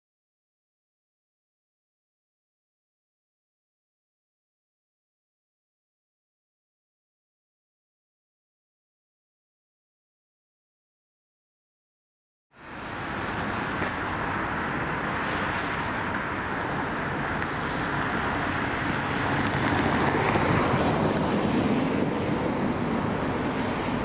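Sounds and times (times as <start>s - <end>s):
rumbling vehicle noise: 12.6s - 24.0s.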